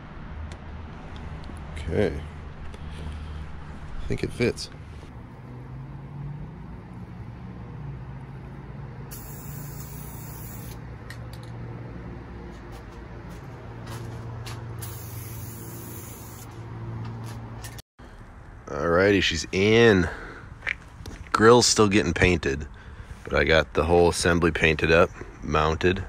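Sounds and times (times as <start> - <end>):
spray paint can hissing: 9.1 - 10.8, 14.8 - 16.5.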